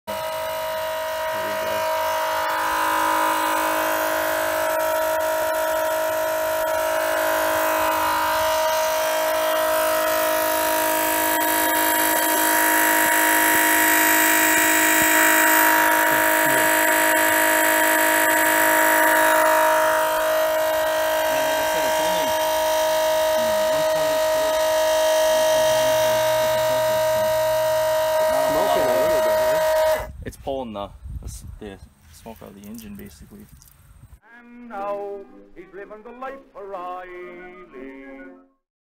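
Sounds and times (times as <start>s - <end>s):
pump motor humming: 0.1s - 30.1s.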